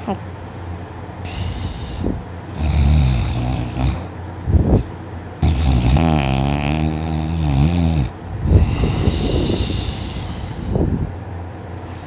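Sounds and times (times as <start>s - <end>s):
short breath: 1.3s - 2.2s, 8.5s - 10.8s
woman snoring loudly: 1.3s - 4.1s, 5.4s - 10.7s.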